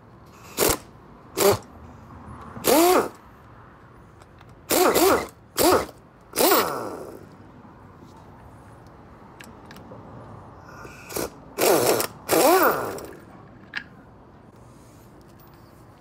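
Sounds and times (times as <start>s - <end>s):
pneumatic impact wrench bursts: 0.3s - 1.7s, 2.6s - 3.2s, 4.6s - 7.3s, 10.7s - 13.3s.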